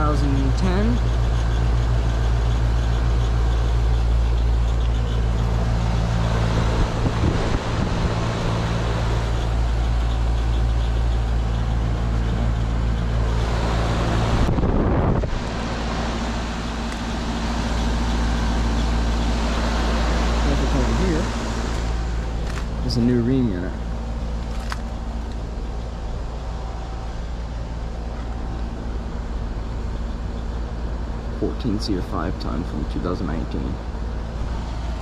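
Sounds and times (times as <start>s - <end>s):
compressor hum: 0.0s - 35.0s
condenser fan rushing: 0.0s - 35.0s.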